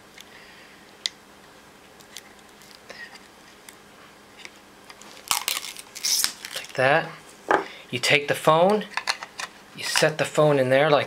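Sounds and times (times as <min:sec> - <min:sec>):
film peeling crackle: 0:02.0 - 0:02.9, 0:04.9 - 0:06.8.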